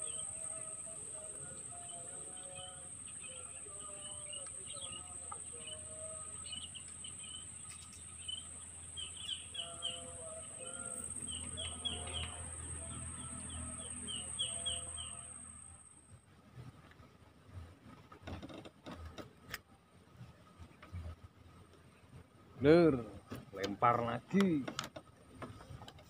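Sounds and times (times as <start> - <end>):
wild birds chirping: 0.0 - 16.1
high-pitched insect drone: 9.3 - 16.0.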